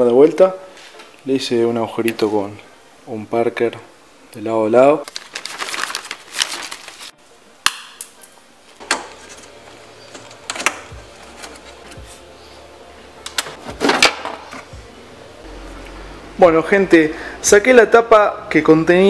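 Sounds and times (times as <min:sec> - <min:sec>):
plastic bag crinkling: 0:05.0 - 0:07.1.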